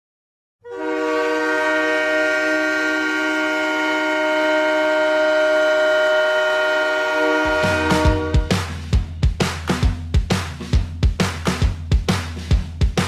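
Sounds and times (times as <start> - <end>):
goal horn blast: 0.6 - 8.7.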